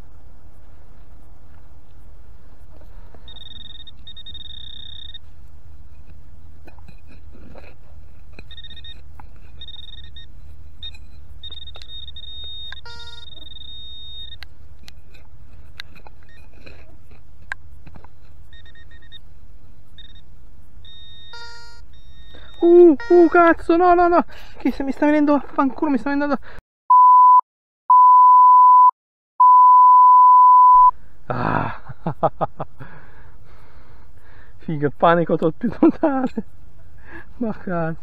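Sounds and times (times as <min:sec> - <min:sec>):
metal detector beeps: 0:03.2 - 0:05.3, 0:08.4 - 0:14.4, 0:16.2 - 0:16.5, 0:18.4 - 0:19.2, 0:19.9 - 0:23.7, 0:26.9 - 0:30.9.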